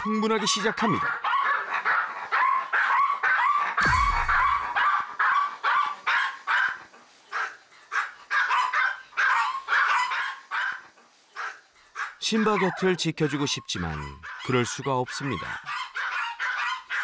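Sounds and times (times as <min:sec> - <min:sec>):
small dogs barking rapidly: 0:00.0 - 0:17.0
low thump: 0:03.8 - 0:04.8.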